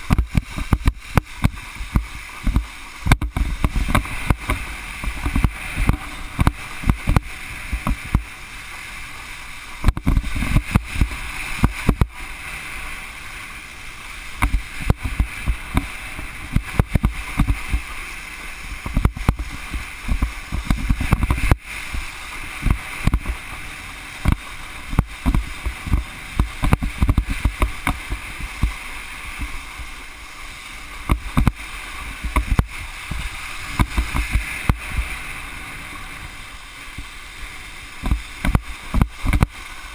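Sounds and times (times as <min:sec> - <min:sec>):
low thumps on water: 0:00.0 - 0:08.3, 0:09.8 - 0:12.2, 0:14.4 - 0:17.9, 0:18.7 - 0:22.0, 0:22.6 - 0:23.6, 0:24.2 - 0:30.0, 0:31.0 - 0:31.6, 0:32.2 - 0:35.1, 0:38.0 - 0:39.6
water spray hissing: 0:00.0 - 0:39.9.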